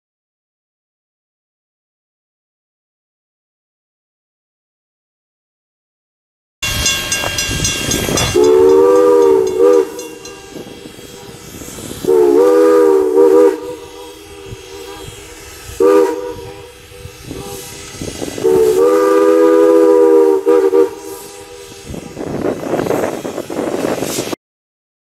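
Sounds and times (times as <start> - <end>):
locomotive exhaust: 6.6 - 24.4
steam hiss: 6.6 - 24.4
steam whistle blasts: 6.6 - 24.4.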